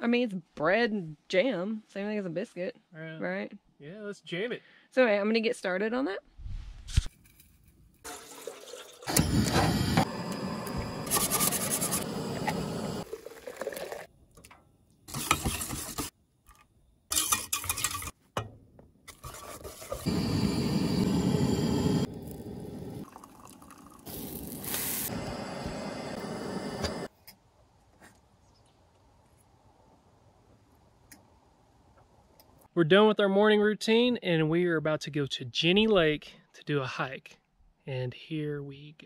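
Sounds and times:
water pouring into kettle: 8.1 - 10.0, 11.7 - 14.1, 22.1 - 25.2
pots and utensils clinking: 17.1 - 18.2
whisk beating batter in pot: 19.1 - 20.1.

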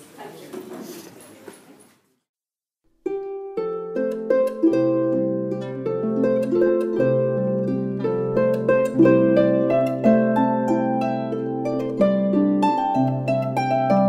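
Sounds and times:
harp playing: 3.0 - 14.0.

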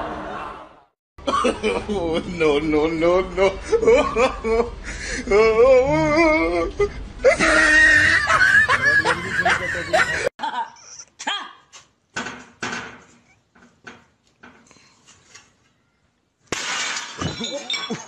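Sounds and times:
people laughing loudly: 3.4 - 4.8, 7.3 - 10.6.

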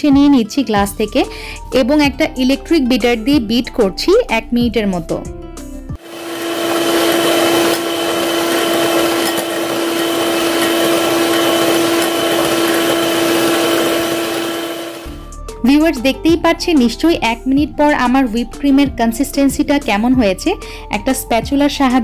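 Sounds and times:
electric hand mixer whipping cream: 6.0 - 15.2.

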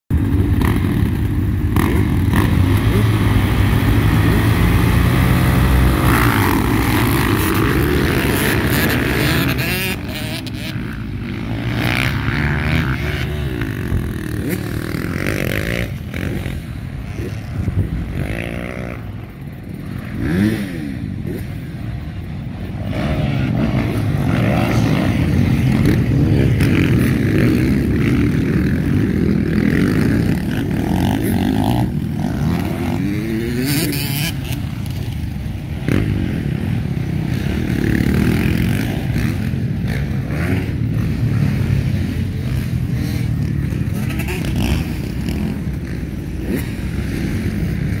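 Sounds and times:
motocross bike engines revving: 0.1 - 48.0.

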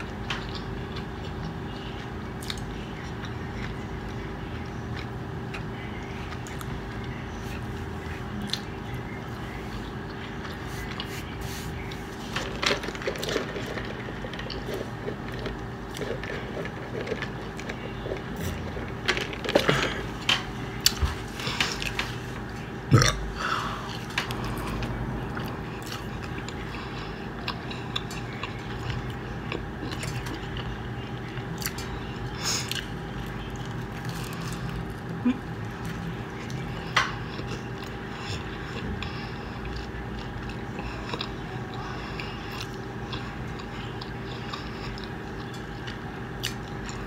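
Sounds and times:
person chewing food: 0.0 - 47.0
steady background hum: 0.0 - 47.0
person burping: 22.9 - 23.5.

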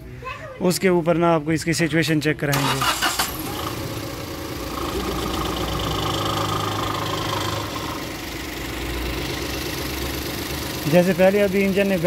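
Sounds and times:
car engine idling: 2.8 - 12.0.

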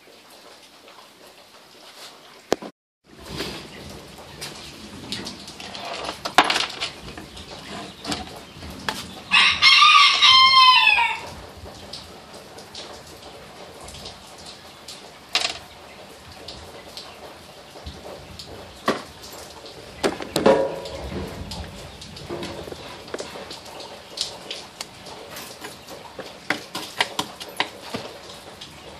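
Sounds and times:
rooster crowing: 9.3 - 11.3.

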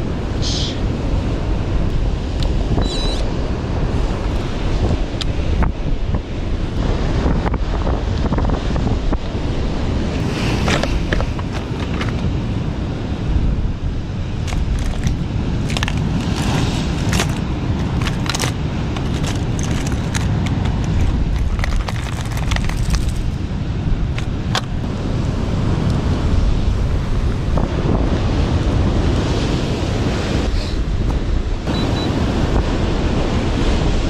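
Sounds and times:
wind buffeting microphone: 0.0 - 34.0
sharp clicks and crackles: 14.4 - 23.4.

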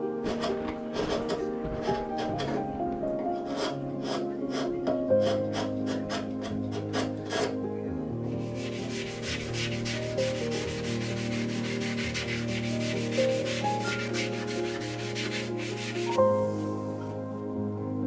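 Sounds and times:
sandpaper rasping on wood: 0.3 - 2.6, 3.4 - 7.5, 8.5 - 16.2.

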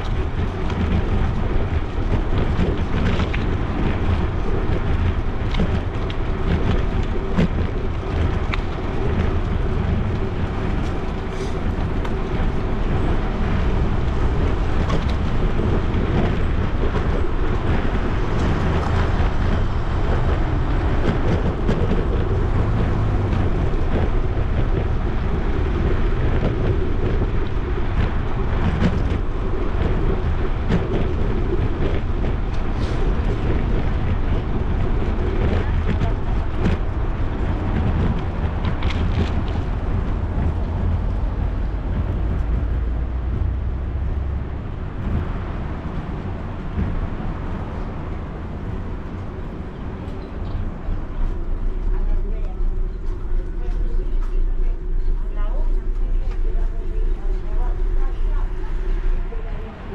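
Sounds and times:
bike clicks and rattles: 0.0 - 43.5
bicycle tyres on asphalt: 0.0 - 59.9
wind rumble on microphone: 0.0 - 59.9.

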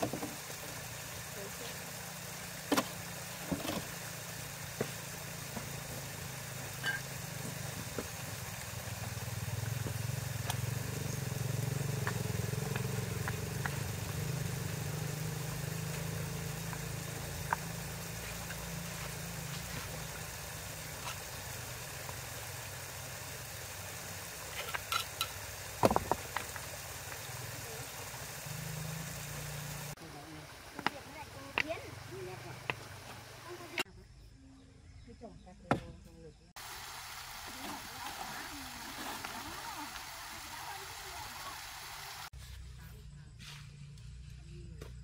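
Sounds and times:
engine running: 0.0 - 33.9.

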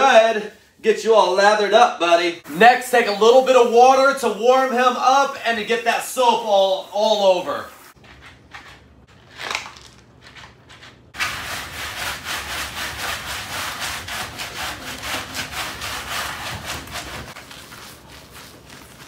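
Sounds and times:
gloves scrubbing wet dog coat: 2.5 - 8.0, 11.2 - 19.0.

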